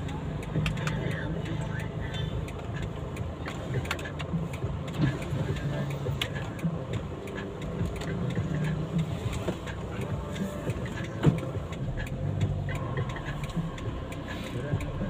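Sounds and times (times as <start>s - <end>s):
car engine idling: 0.0s - 15.0s
street traffic: 0.0s - 15.0s.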